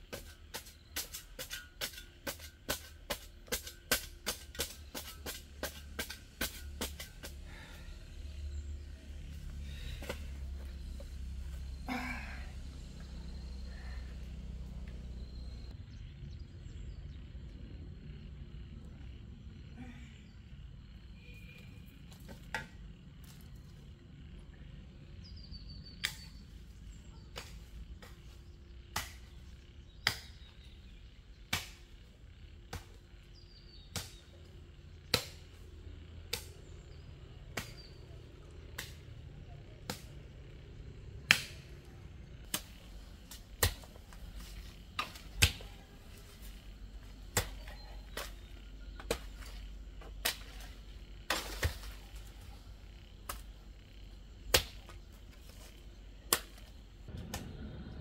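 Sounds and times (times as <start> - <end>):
garden hoe striking soil: 0.0 - 7.8, 27.0 - 30.7, 31.4 - 31.9, 32.7 - 34.4, 35.0 - 35.6, 37.5 - 38.0, 38.7 - 39.1, 39.8 - 40.2, 42.4 - 52.5, 54.2 - 56.8.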